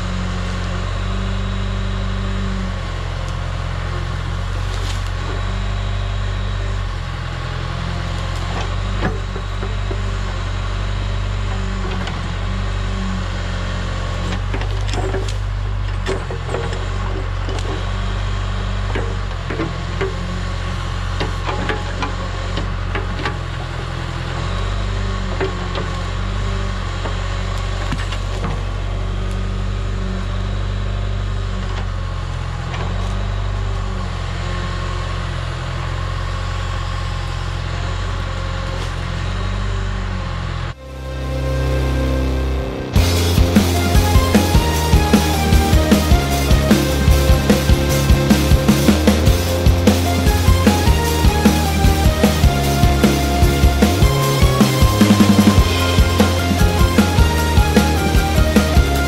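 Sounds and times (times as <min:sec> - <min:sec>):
diesel backhoe engine working: 0:00.0 - 0:59.0
wood cracking and snapping: 0:04.4 - 0:05.3.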